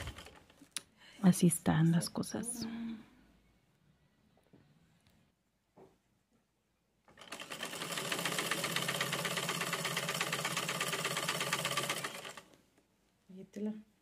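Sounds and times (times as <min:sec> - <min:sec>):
sewing machine running: 0:00.0 - 0:00.5, 0:07.2 - 0:12.5.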